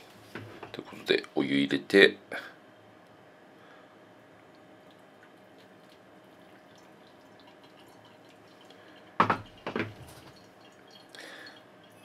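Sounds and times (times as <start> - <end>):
water dripping into cup: 4.5 - 12.0
loud sharp knocks: 9.2 - 10.0.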